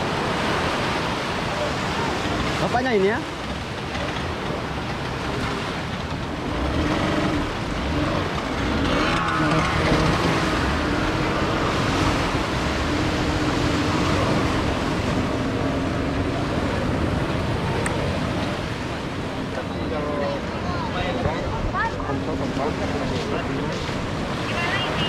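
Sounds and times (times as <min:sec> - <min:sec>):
outboard motor humming: 0:00.0 - 0:25.0
surf breaking on beach: 0:00.0 - 0:25.0.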